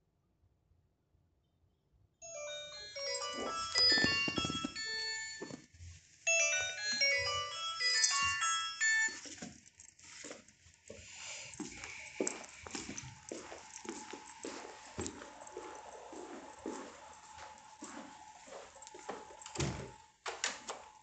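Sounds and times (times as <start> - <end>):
chime-like electronic melody: 2.2 - 5.6, 6.3 - 9.4.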